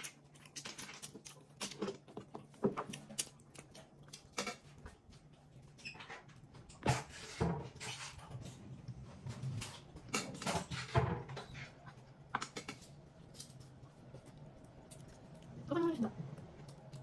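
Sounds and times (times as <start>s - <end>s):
steady low hum: 11.2s - 17.0s.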